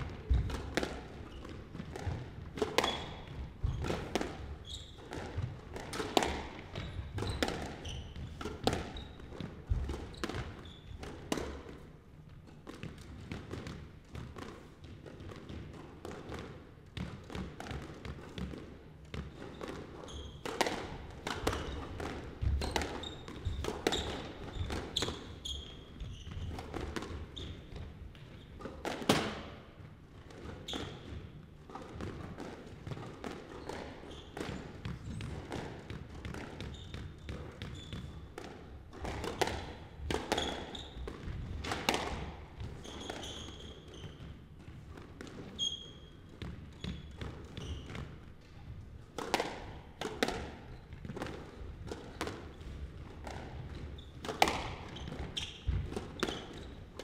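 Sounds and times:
squash ball hits: 0.0 - 11.9, 12.6 - 57.0
shoes squeaking on hardwood: 4.5 - 5.0, 42.7 - 44.3, 46.8 - 47.9.

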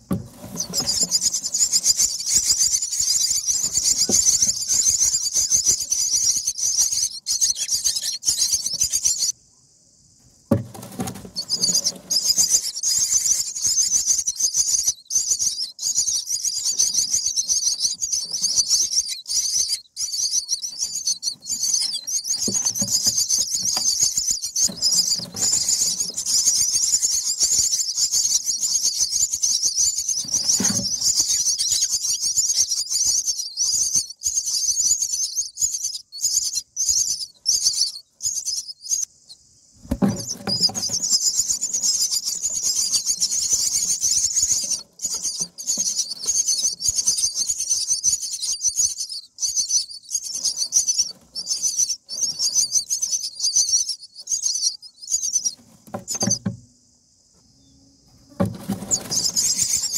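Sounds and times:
dull bumps in nest: 0.0 - 5.6, 10.4 - 12.7, 20.8 - 27.1, 30.2 - 31.5, 39.8 - 46.9, 55.4 - 56.7, 58.2 - 59.9.

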